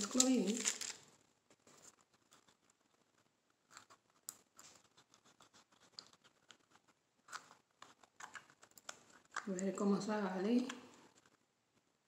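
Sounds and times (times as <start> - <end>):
resin stirred in plastic cup: 0.0 - 1.1.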